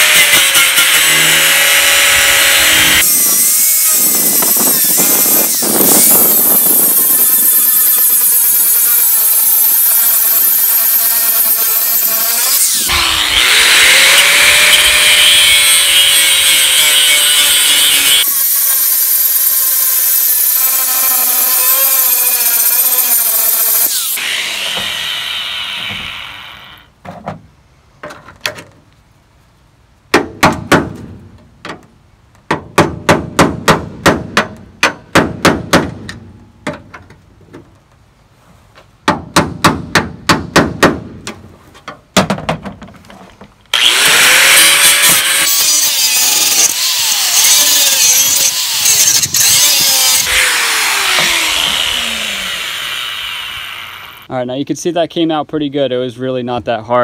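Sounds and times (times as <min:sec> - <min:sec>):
angle grinder cutting metal: 0:00.0 - 0:26.9, 0:43.7 - 0:54.3.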